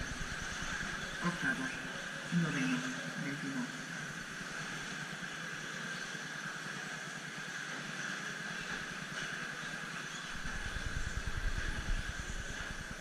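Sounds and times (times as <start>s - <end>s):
low rumble: 10.3s - 13.0s.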